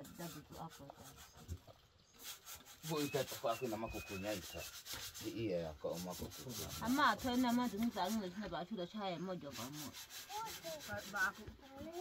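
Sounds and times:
people talking: 0.0s - 0.9s, 2.9s - 4.6s
scratchy rubbing noise: 0.0s - 12.0s.

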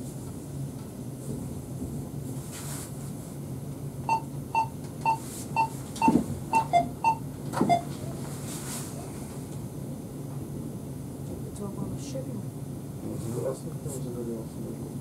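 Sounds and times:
short electronic beeps: 4.1s - 7.9s.

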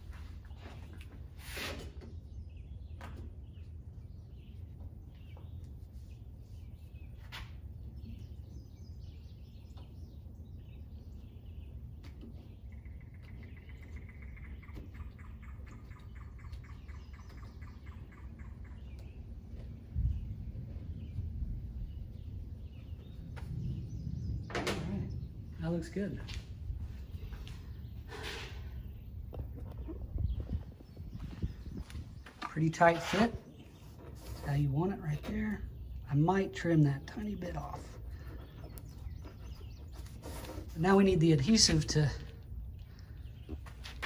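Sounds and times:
steady low rumble: 7.7s - 39.9s.

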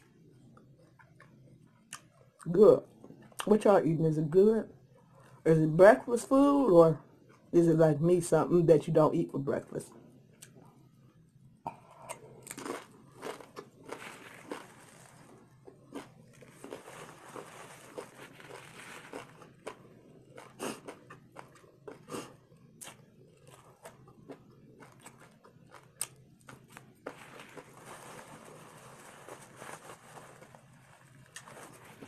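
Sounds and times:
chewing crunchy taco shell: 11.7s - 32.0s
wet mouth clicks: 22.0s - 23.0s.

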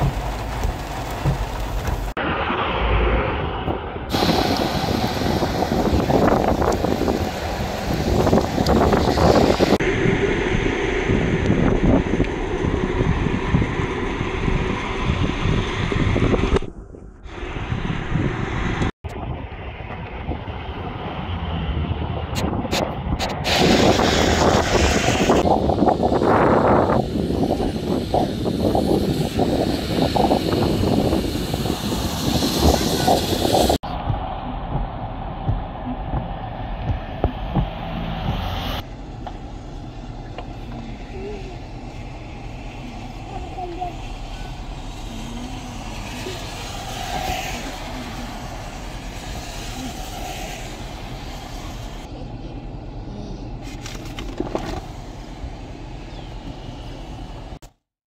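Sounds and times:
wind rumble on microphone: 0.0s - 57.8s
car tyres hissing on wet road: 4.1s - 11.4s, 23.2s - 54.0s, 54.7s - 57.6s.

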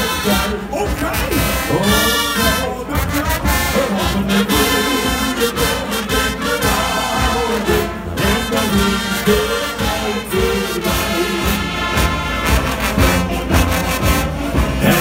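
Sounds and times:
drums: 0.0s - 15.0s
saxophones: 0.0s - 15.0s
trombones: 0.0s - 15.0s
trumpets: 0.0s - 15.0s.

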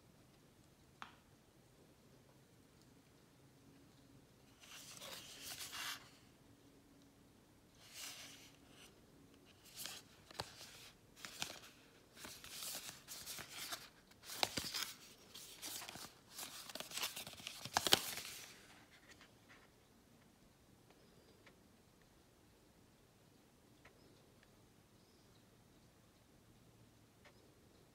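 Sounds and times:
cardboard packaging rustling: 9.5s - 19.2s.

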